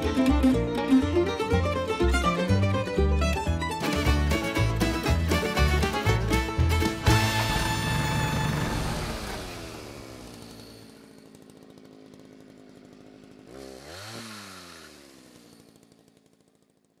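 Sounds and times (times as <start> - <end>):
chainsaw engine revving: 3.7 - 17.0.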